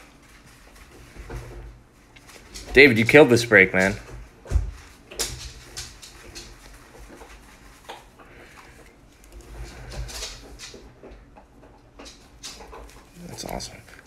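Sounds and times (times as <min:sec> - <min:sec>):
soft handling rustles and taps: 0:03.8 - 0:14.0.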